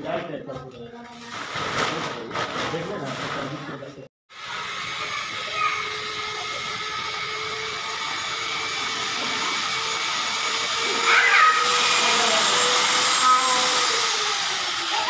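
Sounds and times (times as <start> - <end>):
small electric motor whirring: 4.3 - 15.0.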